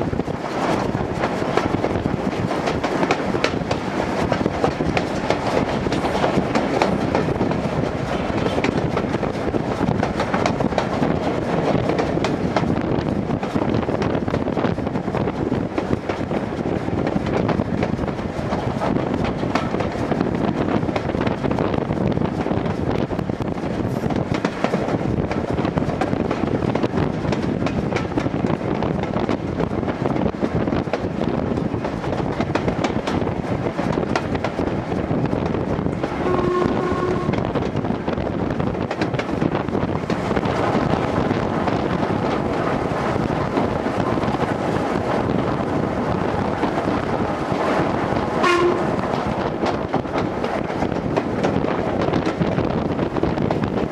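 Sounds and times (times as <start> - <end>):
steam locomotive running: 0.0 - 53.9
steam whistle: 36.2 - 37.4, 48.4 - 48.9.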